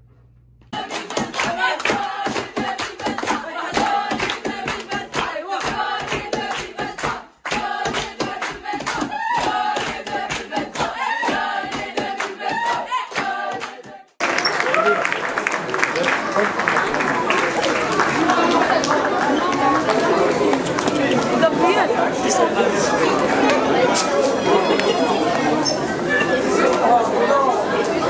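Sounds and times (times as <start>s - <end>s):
group singing loudly: 0.7s - 14.2s
rhythmic hand clapping: 0.7s - 21.5s.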